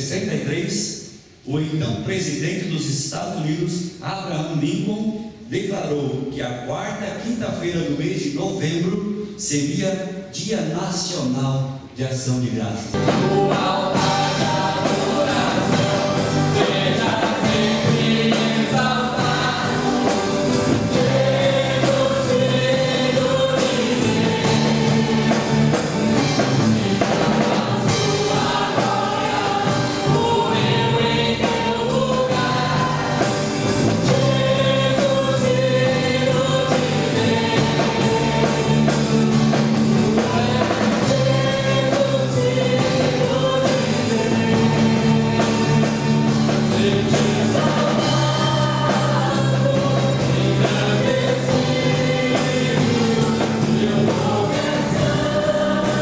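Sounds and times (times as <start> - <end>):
backing voices singing: 12.9 - 56.0
drum kit: 12.9 - 56.0
man singing lead: 13.0 - 25.8, 26.9 - 56.0.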